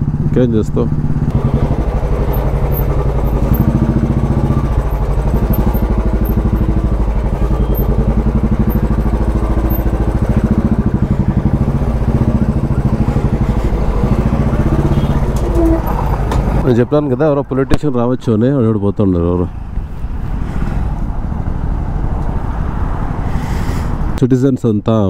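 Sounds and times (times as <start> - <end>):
motorcycle engine at low revs: 0.0 - 16.7.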